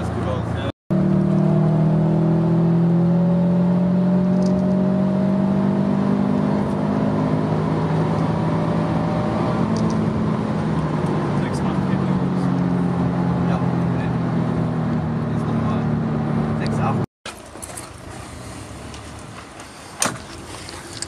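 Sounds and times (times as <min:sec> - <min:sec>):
tyre and road noise: 0:06.4 - 0:21.0.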